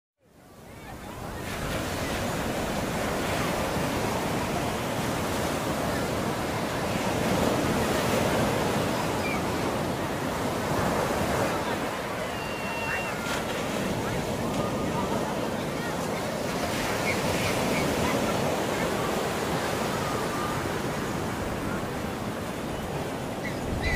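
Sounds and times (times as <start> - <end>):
wind buffeting microphone: 21.3 - 23.9.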